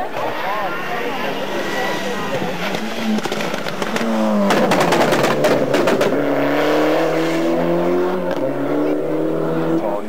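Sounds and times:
rally car passing at speed: 0.2 - 10.0
exhaust pops and crackles: 2.3 - 6.2.

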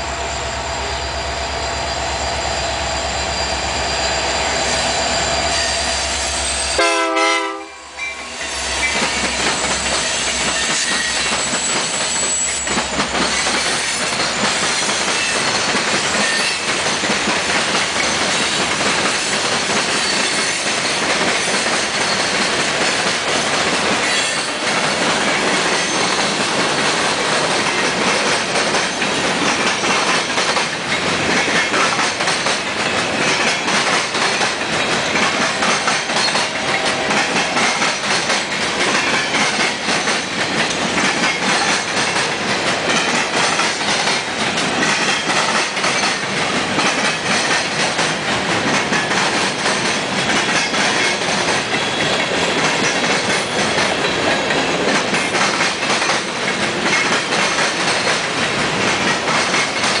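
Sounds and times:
train wheels rumbling on rail: 0.0 - 60.0
wheels clicking over rail joints: 12.7 - 60.0.

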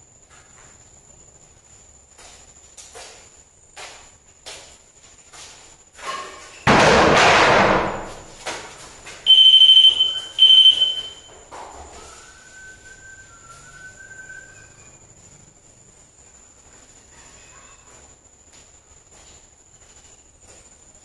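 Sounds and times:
loud crash: 6.7 - 8.2
high electronic beeps: 9.3 - 11.2.

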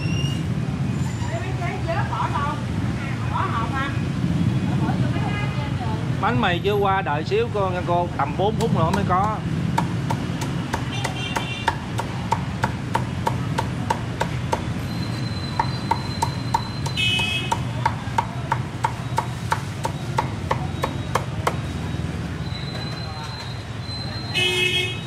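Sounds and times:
cleaver chopping on wooden block: 8.5 - 14.8, 15.5 - 21.7.

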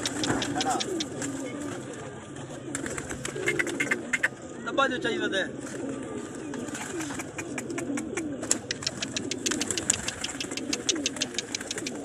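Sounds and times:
rapid sharp clicks: 0.0 - 1.3, 7.0 - 12.0
pigeons cooing: 0.0 - 12.0.

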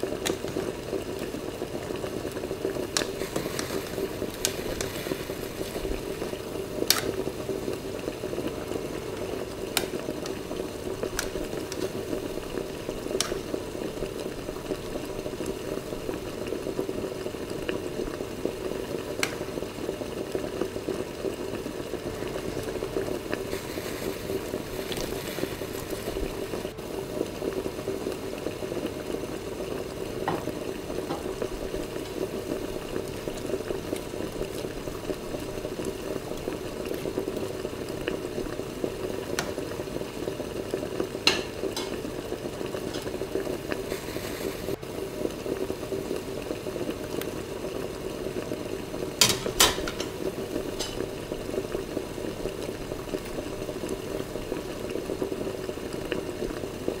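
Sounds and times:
sauce simmering and bubbling: 0.0 - 57.0.

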